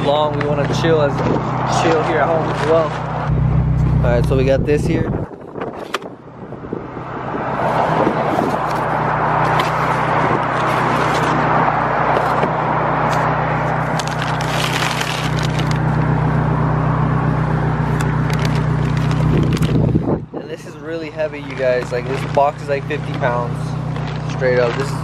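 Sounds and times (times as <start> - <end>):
plastic wrap and cardboard crinkling: 13.8 - 15.9, 18.2 - 19.8, 21.4 - 23.3.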